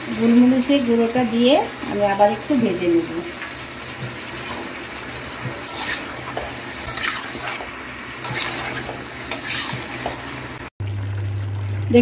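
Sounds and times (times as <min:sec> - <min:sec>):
chicken frying in oil: 0:00.0 - 0:12.0
spatula scraping pan: 0:04.0 - 0:10.7.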